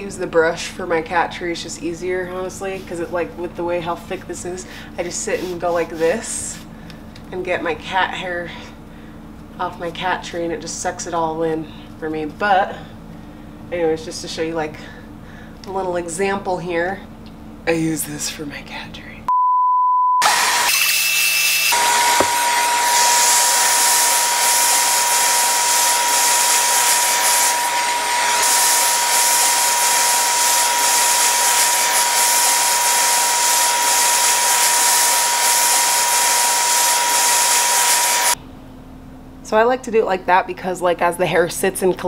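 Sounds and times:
vacuum cleaner running: 4.2 - 6.6, 20.2 - 38.4
short beep tone: 19.3 - 20.2.

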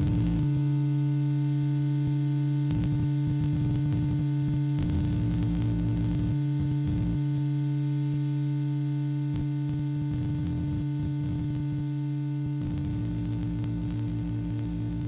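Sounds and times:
gritty low noise: 12.5 - 15.0.

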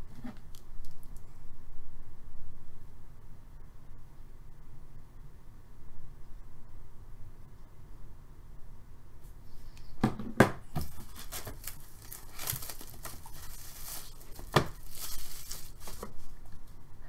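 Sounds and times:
plastic wrap tearing and crinkling: 10.8 - 16.6.

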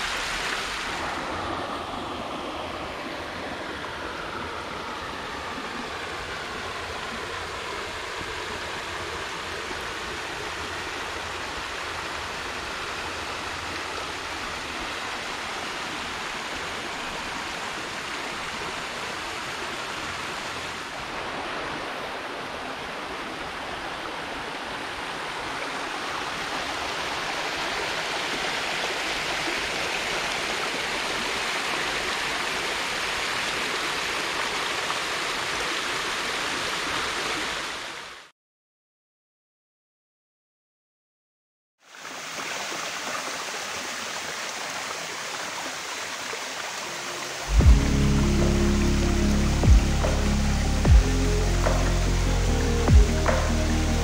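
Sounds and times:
stream running over rocks: 0.0 - 38.3, 41.8 - 54.0.

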